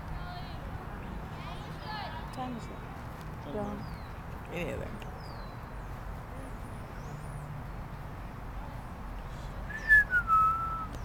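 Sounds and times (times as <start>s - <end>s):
outdoor background noise: 0.0s - 11.0s
person whistling falling tone: 9.7s - 10.9s.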